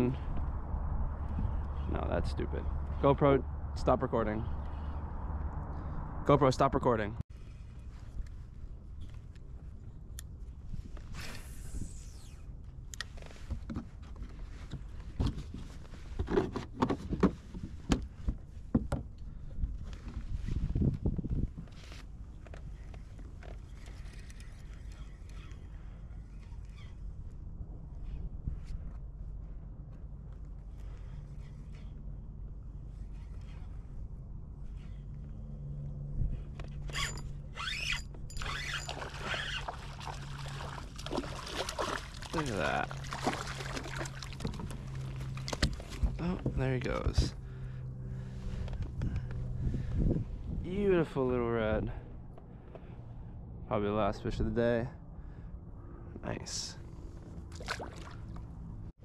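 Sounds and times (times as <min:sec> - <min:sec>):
low steady hum: 0:22.0 - 0:59.0
fishing reel drag buzzing: 0:36.9 - 0:39.8.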